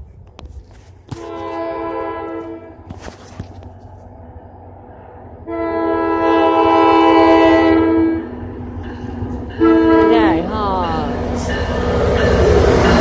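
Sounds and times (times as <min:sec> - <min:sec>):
locomotive engine rumbling: 0:00.0 - 0:13.0
train horn blast: 0:01.1 - 0:02.9, 0:05.4 - 0:08.4, 0:09.5 - 0:11.1.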